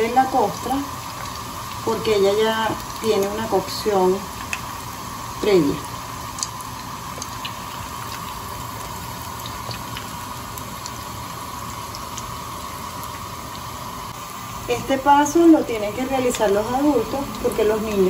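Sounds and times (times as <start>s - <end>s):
food deep-frying in hot oil: 0.0s - 18.0s.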